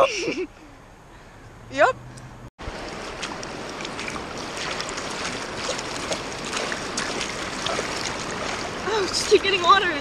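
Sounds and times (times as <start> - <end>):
river rapids rushing: 2.6 - 10.0
water splashing against inflatable tube: 2.6 - 10.0.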